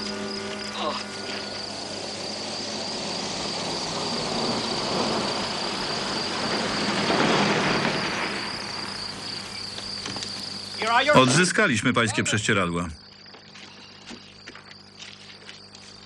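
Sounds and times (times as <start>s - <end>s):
broad rushing noise: 0.0s - 9.5s
crickets chirring: 0.0s - 16.0s.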